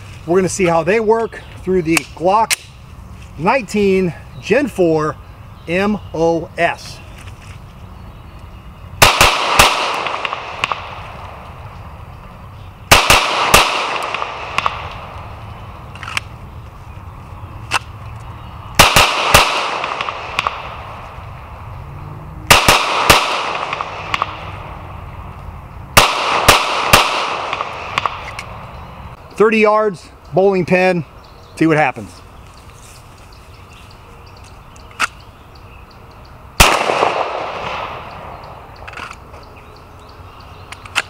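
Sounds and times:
pistol shots echoing: 9.0 - 11.2, 12.9 - 15.2, 18.8 - 21.0, 22.5 - 24.6, 26.0 - 28.4, 36.6 - 38.2.

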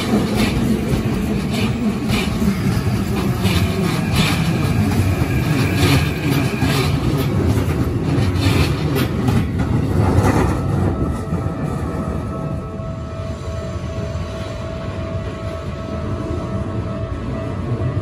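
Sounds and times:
rail joint clacks: 0.0 - 12.5
train wheels rumbling on rails: 0.0 - 18.0.

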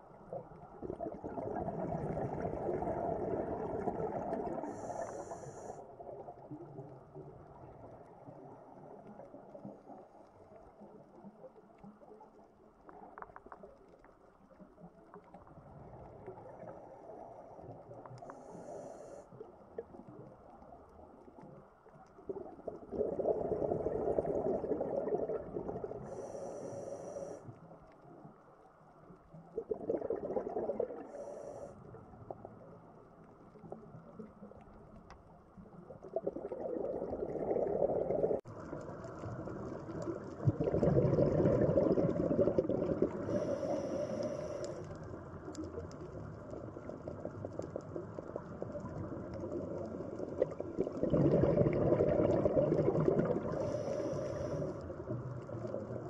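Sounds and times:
regulator inhale hisses: 4.6 - 5.9, 18.2 - 19.4, 26.0 - 27.5, 31.0 - 31.8, 43.2 - 45.0, 53.5 - 54.9
rumbling exhaust bubbles: 40.4 - 43.4, 50.4 - 53.9.

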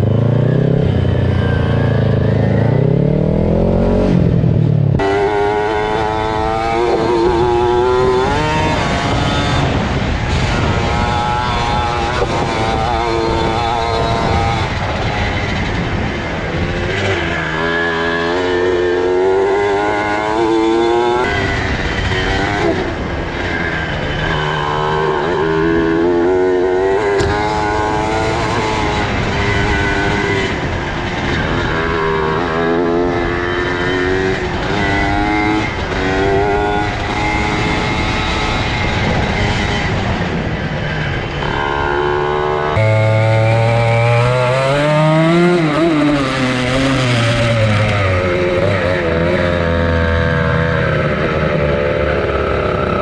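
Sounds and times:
wind noise on microphone: 0.0 - 53.0
mini bike engine revving: 5.0 - 53.0.

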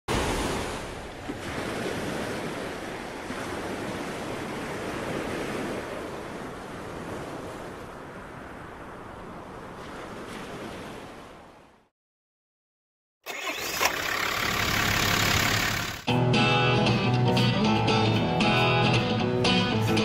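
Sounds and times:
ocean waves breaking: 0.1 - 11.8.

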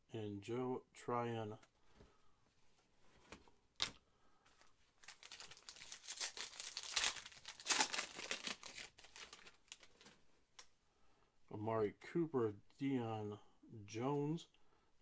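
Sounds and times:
foil wrapper tearing and crinkling: 5.0 - 10.1.

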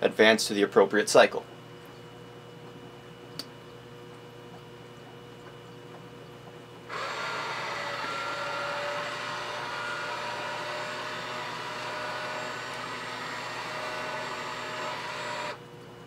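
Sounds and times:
valve drive motor whining: 6.9 - 15.6.

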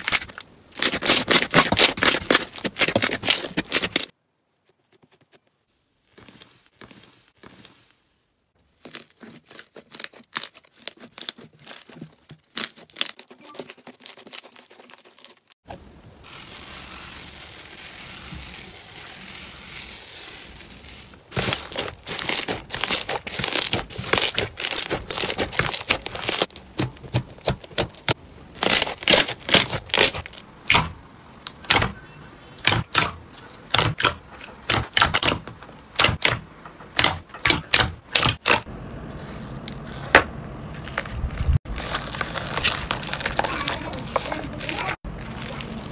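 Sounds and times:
slime crackling and popping: 16.3 - 30.8, 40.7 - 45.9.

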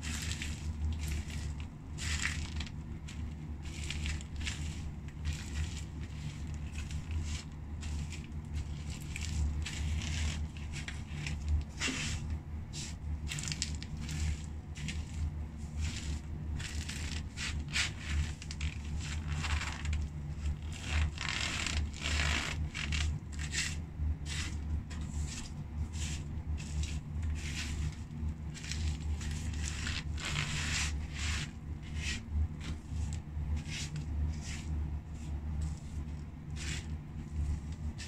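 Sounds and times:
feet squashing fries on tile: 0.0 - 12.3
steady low hum: 0.0 - 38.0.

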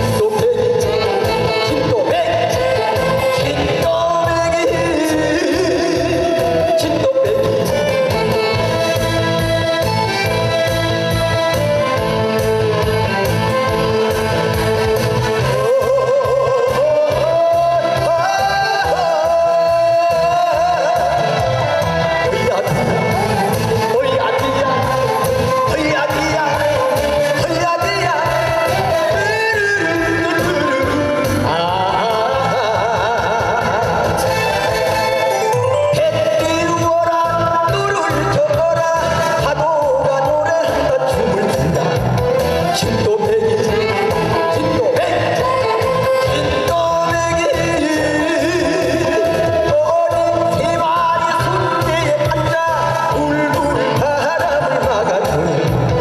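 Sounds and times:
backing track with bass beat: 0.0 - 56.0
man singing: 0.0 - 56.0.

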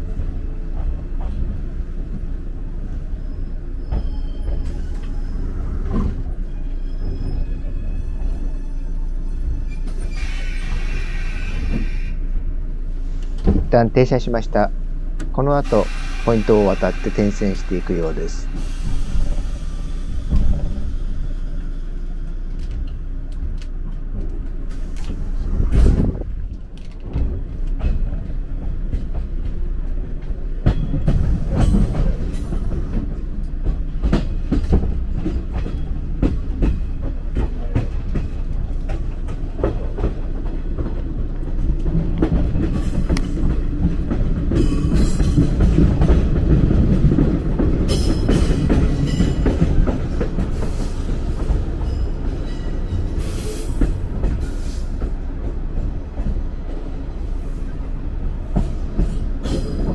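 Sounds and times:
train rumble: 0.0 - 59.9
high-pitched wheel squeals: 3.2 - 5.6, 6.4 - 12.2
train wheels clicking over rail joints: 15.1 - 59.9.

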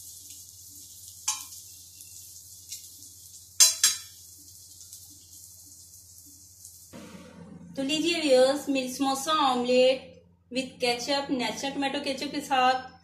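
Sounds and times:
ghee sizzling in pan: 0.0 - 7.0
tongs clacking on metal: 1.2 - 1.6, 3.6 - 4.2.

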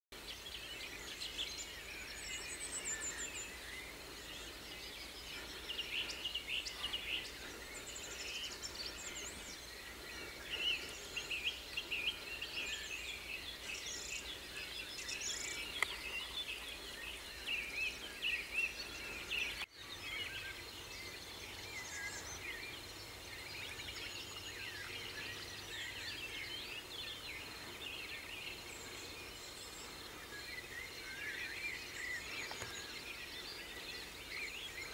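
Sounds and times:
birds singing in chorus: 0.1 - 34.9.

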